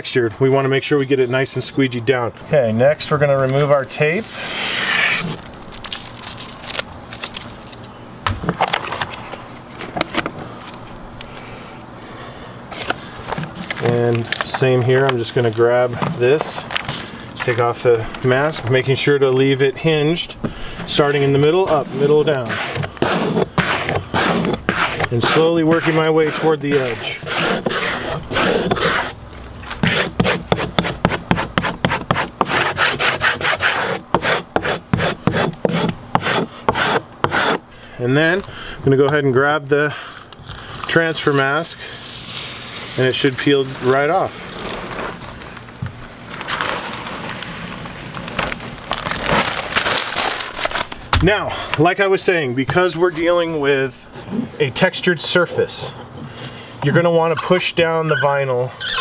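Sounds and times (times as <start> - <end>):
paper backing crackling and crinkling: 3.4 - 8.0, 12.7 - 29.0, 40.0 - 51.6
squeegee scraping over vinyl: 3.5 - 7.8, 12.7 - 37.6, 40.4 - 45.7, 46.3 - 51.0.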